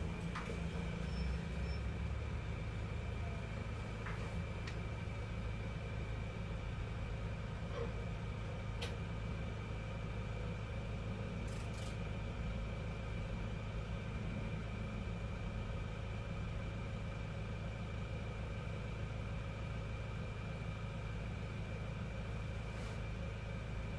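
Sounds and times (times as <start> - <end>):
machine humming with whines: 0.0 - 7.3.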